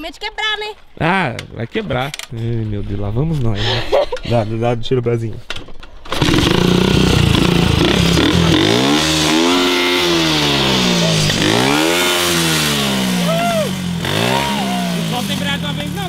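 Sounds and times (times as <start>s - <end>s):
motorcycle engine revving: 6.0s - 16.0s.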